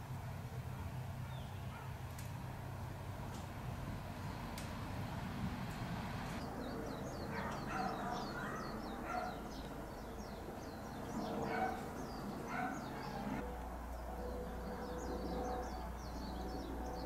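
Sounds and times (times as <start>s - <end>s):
low outdoor rumble: 0.0s - 17.0s
small birds twittering: 0.7s - 2.0s, 6.2s - 17.0s
lower bird calls: 6.3s - 17.0s.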